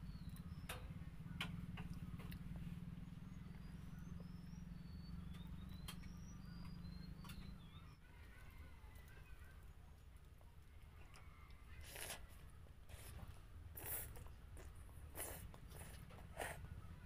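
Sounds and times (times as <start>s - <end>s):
low motor hum: 0.0s - 17.0s
high bird chirps: 3.2s - 8.0s.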